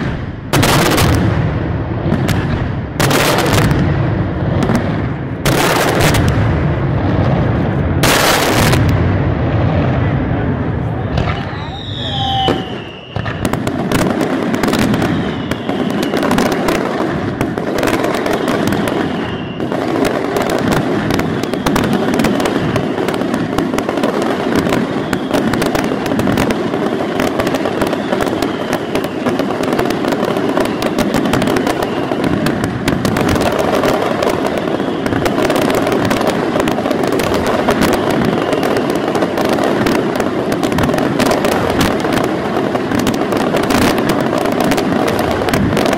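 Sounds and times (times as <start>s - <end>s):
fireworks bangs and crackling: 0.0s - 45.9s
falling firework whistles: 11.0s - 45.9s.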